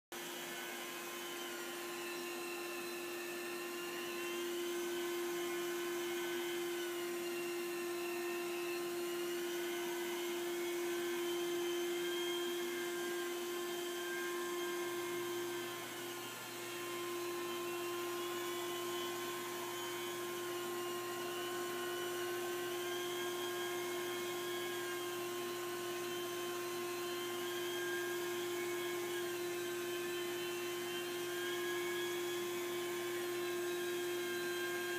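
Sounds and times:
carpet cleaning machine humming: 0:00.1 - 0:34.9.

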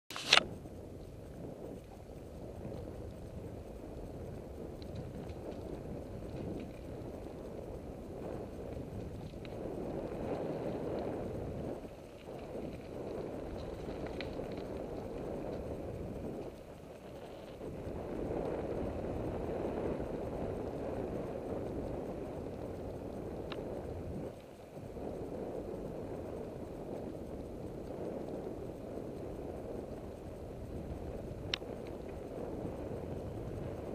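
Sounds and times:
light clicks and crunches: 0:00.1 - 0:00.5, 0:12.1 - 0:15.7
bicycle tyres rolling on gravel: 0:00.1 - 0:33.9
wind buffeting microphone: 0:00.1 - 0:33.9.

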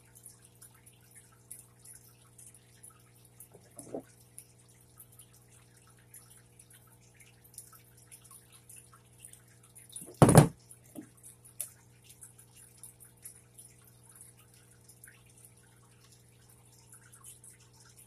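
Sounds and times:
metal tool knocking on table: 0:10.1 - 0:10.6.

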